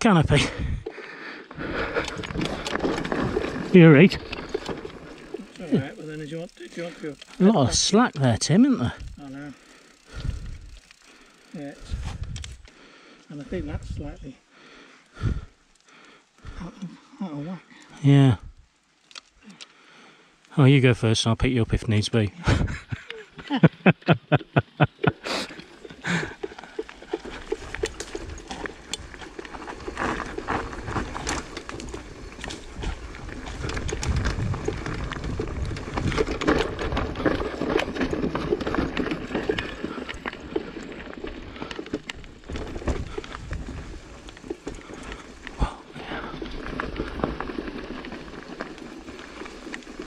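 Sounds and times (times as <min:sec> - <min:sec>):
bike rattling and clicking: 0:00.0 - 0:16.7, 0:17.8 - 0:19.8, 0:24.3 - 0:50.0
bike tyres crunching over stones: 0:00.0 - 0:21.1, 0:24.4 - 0:50.0.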